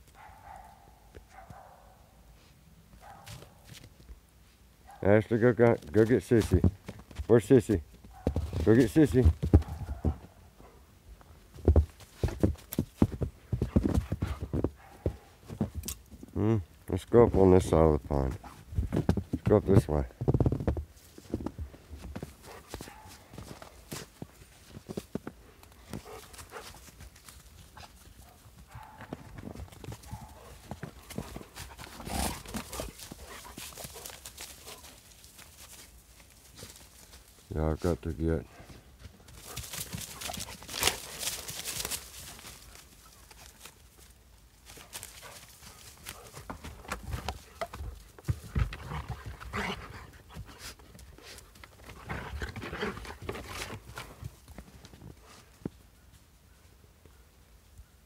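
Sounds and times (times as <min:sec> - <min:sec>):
footsteps crunching in snow: 0:20.2 - 0:28.4, 0:39.0 - 0:48.4
dogs breathing hard: 0:25.4 - 0:27.0, 0:48.4 - 0:54.2
dogs scuffling: 0:39.0 - 0:55.3.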